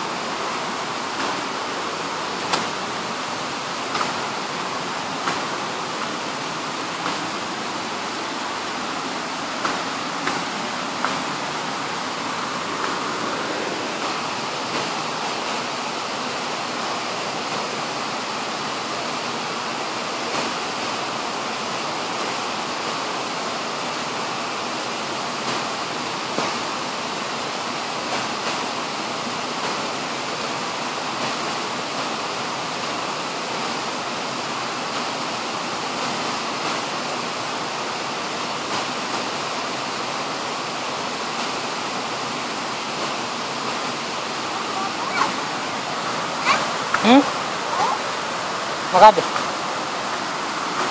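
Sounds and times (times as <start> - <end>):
waterfall roaring: 0.0 - 50.9.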